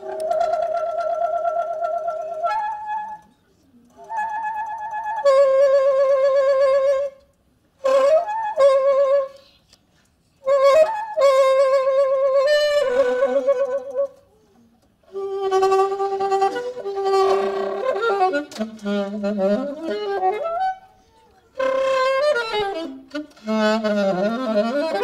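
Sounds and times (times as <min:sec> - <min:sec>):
saxophone long held notes: 0:15.1 - 0:20.9, 0:21.5 - 0:25.0.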